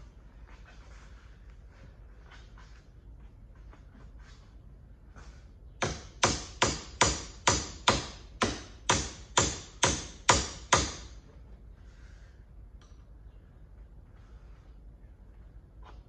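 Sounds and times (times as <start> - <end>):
hammer striking metal: 5.8 - 11.1.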